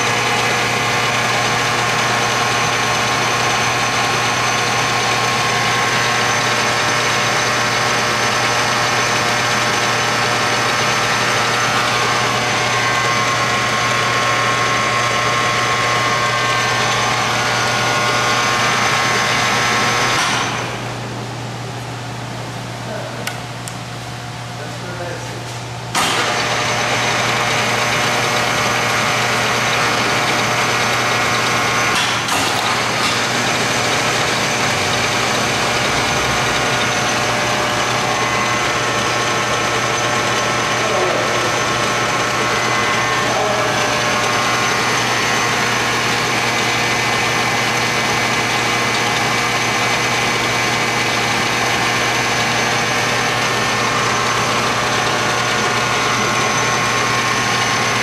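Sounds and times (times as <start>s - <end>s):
lathe running: 0.0s - 58.0s
clicks: 23.2s - 23.8s.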